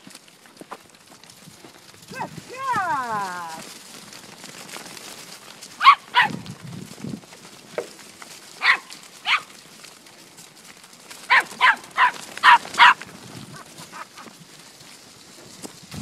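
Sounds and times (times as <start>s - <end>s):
puppy barking in sharp yaps: 5.8s - 6.4s, 8.6s - 9.5s, 11.3s - 13.0s.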